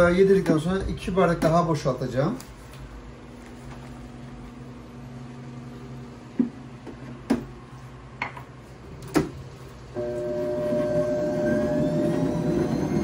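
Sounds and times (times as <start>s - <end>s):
stand mixer motor humming: 10.0s - 13.0s.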